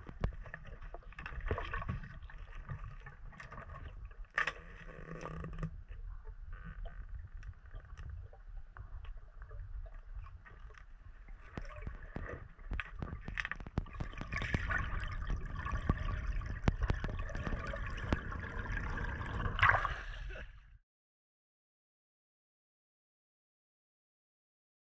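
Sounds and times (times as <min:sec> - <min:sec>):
water bubbling: 0:00.0 - 0:20.5
underwater rumble: 0:00.0 - 0:20.8.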